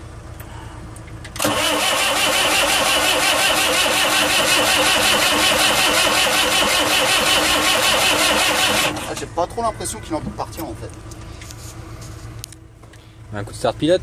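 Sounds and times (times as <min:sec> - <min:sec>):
diesel engine cranking: 0:00.3 - 0:11.6
starter motor whine: 0:01.4 - 0:09.3.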